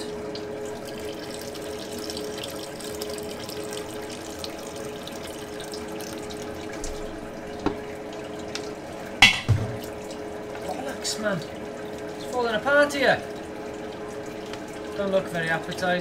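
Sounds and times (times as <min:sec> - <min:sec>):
steady hum: 0:00.0 - 0:10.9
juice trickling into mash: 0:00.0 - 0:16.0
sharp knock: 0:09.2 - 0:09.8.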